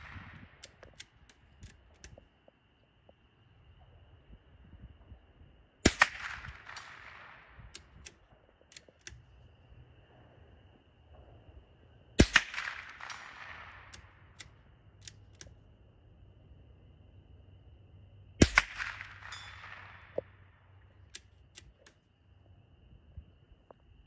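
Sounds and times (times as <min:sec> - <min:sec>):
rifle shots with echo: 0:00.0 - 0:02.0, 0:05.8 - 0:08.2, 0:12.2 - 0:14.6, 0:18.4 - 0:20.6
faint clicks: 0:00.0 - 0:02.6, 0:06.7 - 0:09.5, 0:12.6 - 0:15.6, 0:18.8 - 0:22.1.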